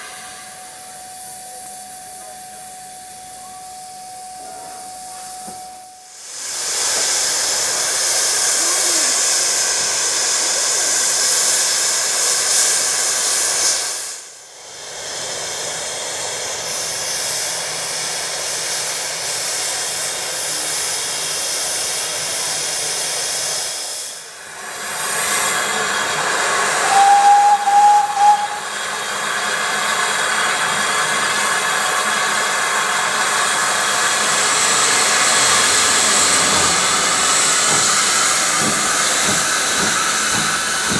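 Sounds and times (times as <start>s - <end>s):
steam hissing: 0.0s - 40.9s
short high whistle note: 26.8s - 28.8s.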